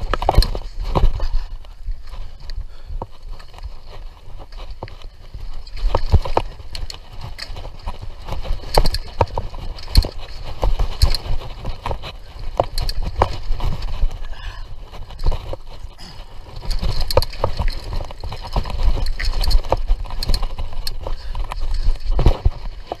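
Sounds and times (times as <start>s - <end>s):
bike knocks and clatter: 0.0s - 1.3s, 4.5s - 13.9s, 16.6s - 23.0s.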